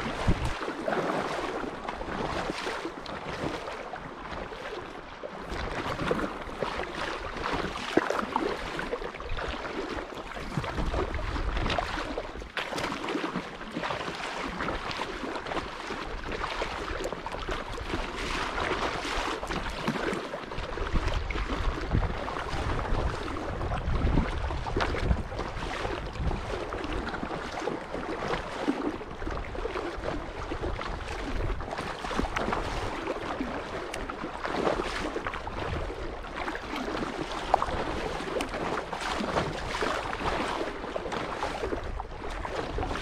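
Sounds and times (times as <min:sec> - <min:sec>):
wind buffeting microphone: 0:00.0 - 0:02.6, 0:20.5 - 0:33.7
water splashing against kayak hull: 0:00.0 - 0:43.0.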